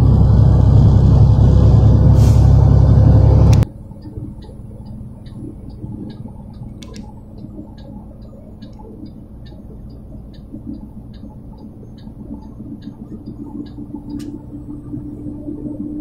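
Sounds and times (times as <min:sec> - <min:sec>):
quiet cabin hum: 0:00.0 - 0:16.0
road and engine rumble: 0:00.0 - 0:16.0
light regular ticking: 0:03.9 - 0:14.7.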